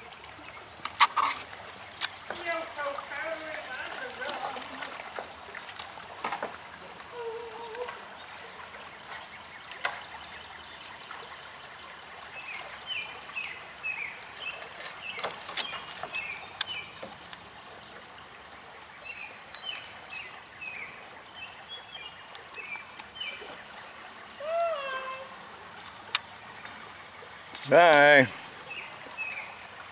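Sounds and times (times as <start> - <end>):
stream flowing: 0.0 - 29.9
bird calling: 24.4 - 25.4.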